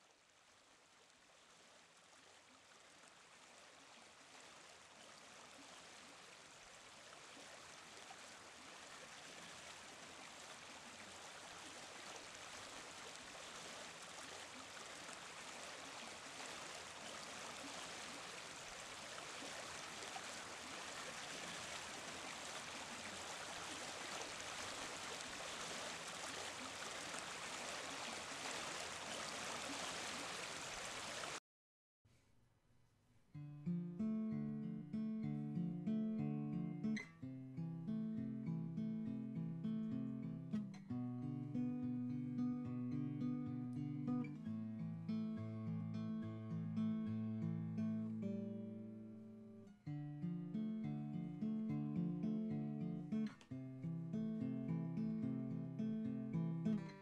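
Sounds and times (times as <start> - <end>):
stream water rushing: 0.1 - 31.4.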